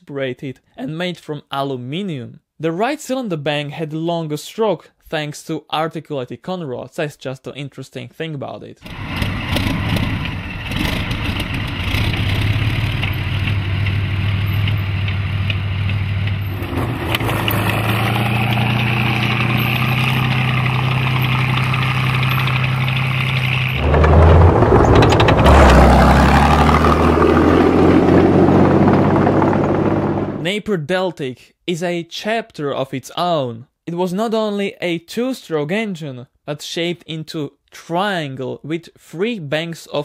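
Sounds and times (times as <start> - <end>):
tank diesel engine running: 8.9 - 30.4.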